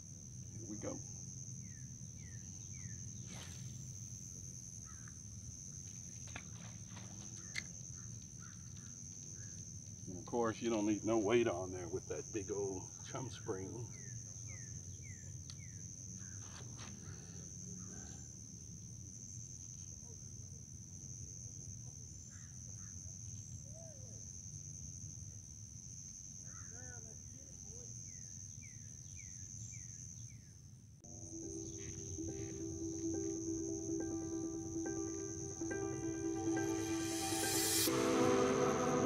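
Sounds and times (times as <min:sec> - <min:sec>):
high-pitched insect chorus: 0:00.0 - 0:39.0
background music: 0:31.1 - 0:39.0.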